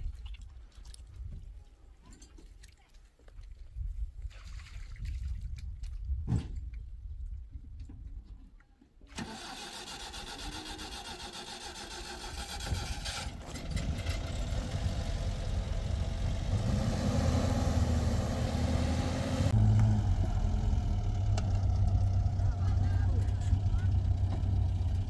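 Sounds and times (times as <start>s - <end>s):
car engine starting and running: 9.1s - 25.0s.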